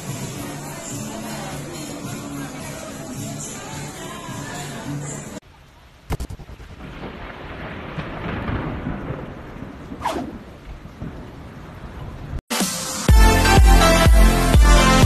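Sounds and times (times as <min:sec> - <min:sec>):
rushing rain-like noise: 0:00.0 - 0:13.5
thunder rumble: 0:06.1 - 0:12.4.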